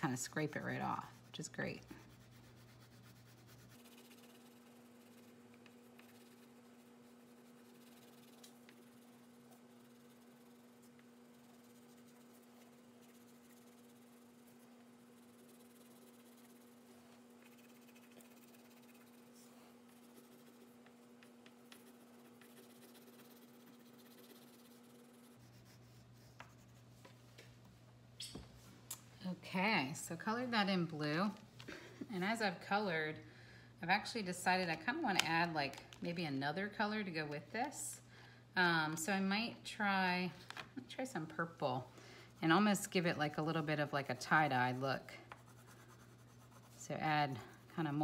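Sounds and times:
steady low hum: 0.0s - 48.0s
pastel scratching on paper: 0.1s - 26.9s, 43.7s - 48.0s.

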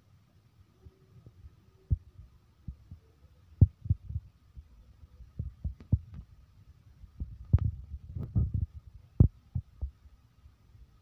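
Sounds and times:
faint steady high tone: 0.0s - 3.8s.

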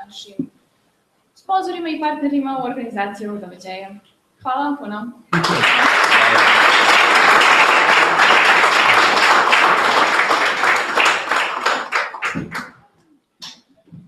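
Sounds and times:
audience applauding: 5.4s - 12.9s.

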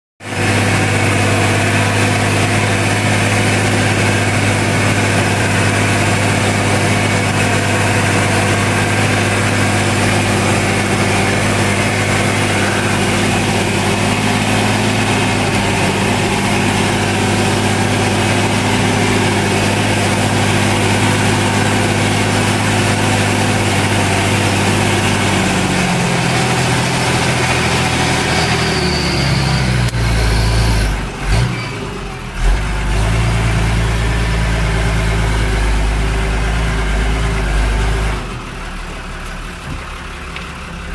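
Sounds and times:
tractor diesel engine running: 0.2s - 40.9s.

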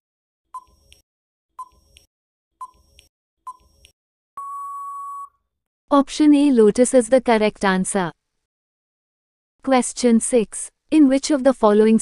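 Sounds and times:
electronic tick-beeps: 1.6s - 5.3s
long steady beep: 4.4s - 5.4s.

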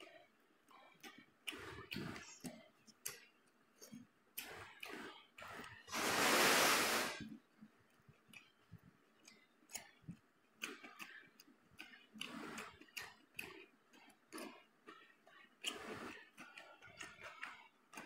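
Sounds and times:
person chewing and lip-smacking: 0.8s - 5.7s, 7.7s - 18.0s
loud breathy rush: 5.9s - 7.2s.

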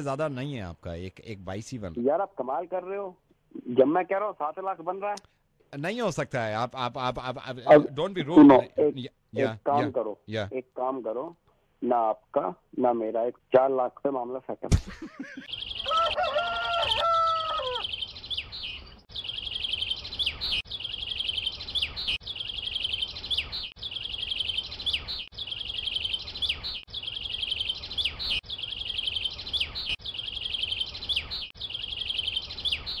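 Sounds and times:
bird chirping trill: 15.3s - 33.0s.

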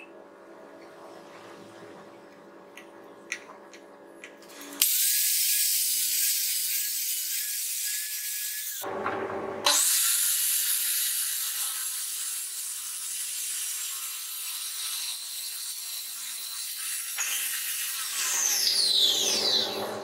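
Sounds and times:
circular saw cutting plywood: 4.6s - 20.0s
saw blade spinning down whine: 18.2s - 20.0s.

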